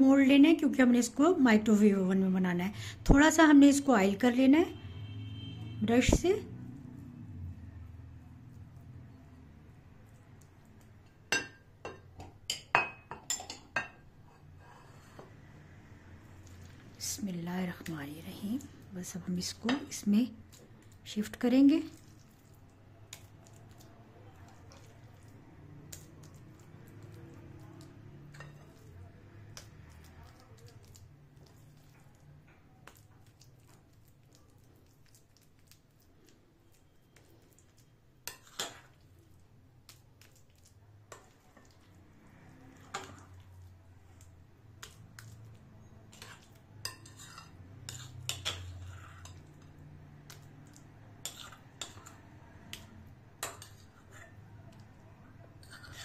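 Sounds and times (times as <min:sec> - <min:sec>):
metal spoon clinking on glass: 0:11.3 - 0:14.0.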